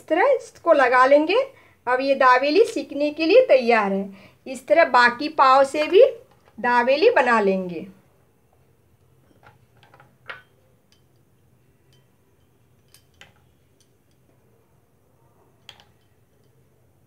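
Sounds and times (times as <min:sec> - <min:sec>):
spoon tapping glass bowls: 0:09.0 - 0:14.4, 0:15.6 - 0:16.8.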